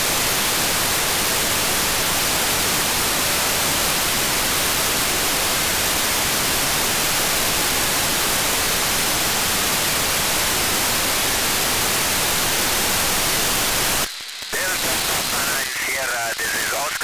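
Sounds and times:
radio static hiss: 0.0s - 17.0s.

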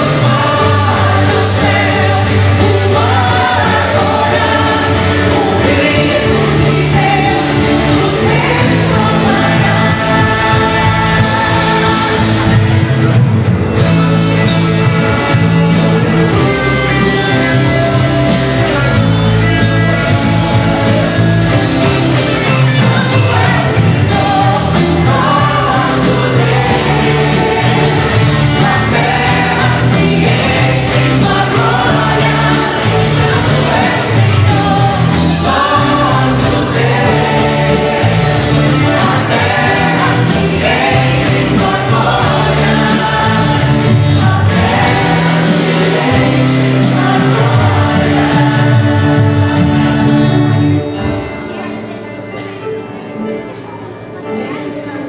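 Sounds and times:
group singing worship song: 0.0s - 13.2s, 15.3s - 51.2s
steady bass line: 0.0s - 51.2s
electric guitar: 0.0s - 55.0s.

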